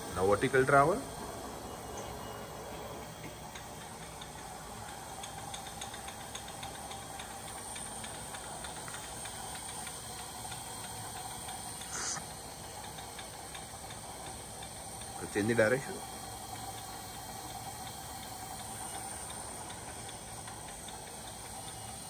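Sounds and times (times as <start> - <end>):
steady hiss: 0.0 - 22.0
feed mechanism ticking: 3.0 - 22.0.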